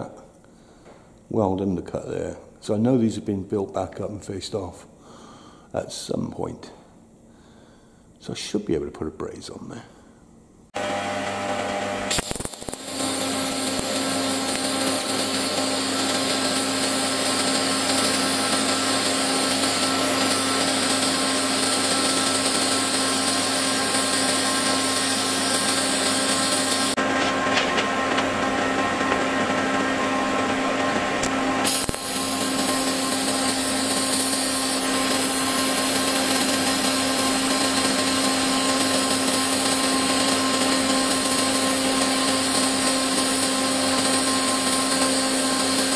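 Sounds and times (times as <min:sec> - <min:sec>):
welding arc hissing: 0:12.1 - 0:28.4, 0:31.6 - 0:38.9.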